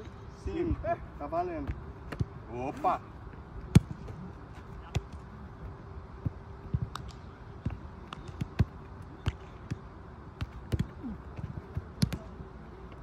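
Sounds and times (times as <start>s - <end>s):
football kicked on turf: 10.4s - 12.3s.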